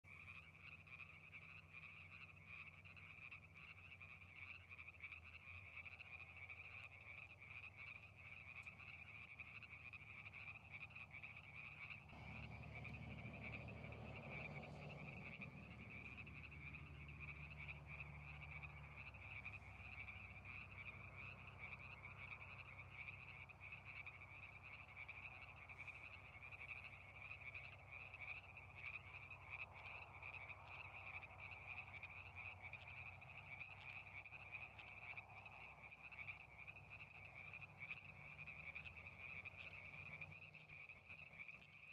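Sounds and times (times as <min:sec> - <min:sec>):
frogs calling: 0:00.0 - 0:41.9
low hum: 0:11.9 - 0:29.4.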